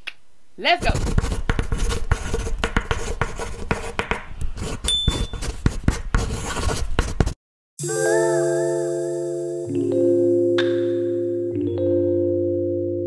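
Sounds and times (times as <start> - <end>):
pen scribbling: 0.9 - 7.4
high chime: 7.8 - 11.8.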